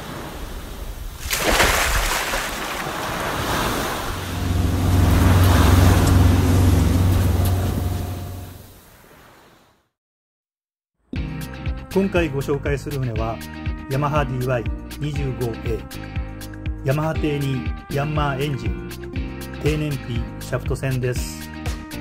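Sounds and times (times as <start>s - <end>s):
waves washing in: 0.0s - 9.7s
low droning tone: 4.2s - 8.6s.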